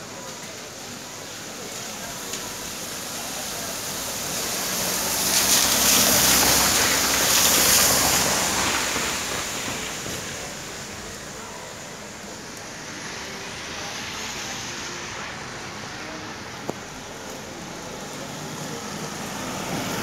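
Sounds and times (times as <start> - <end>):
car tyres hissing on wet road: 0.0 - 20.0.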